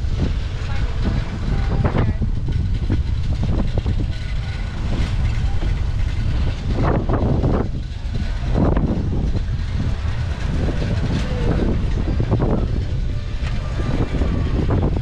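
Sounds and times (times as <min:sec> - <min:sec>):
tyres rolling over pavement: 0:00.0 - 0:15.0
wind buffeting microphone: 0:00.0 - 0:15.0
people talking: 0:00.5 - 0:02.4, 0:10.4 - 0:15.0.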